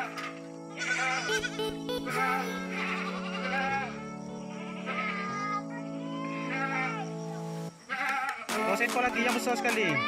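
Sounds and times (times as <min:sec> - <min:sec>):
music with held chords: 0:00.0 - 0:07.8, 0:08.5 - 0:10.0
wavering melody line: 0:01.3 - 0:04.4.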